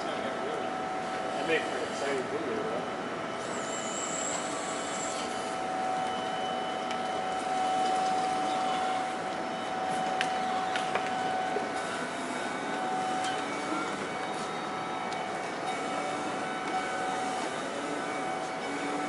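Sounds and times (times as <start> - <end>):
electric forklift motor whine: 0.0 - 19.0.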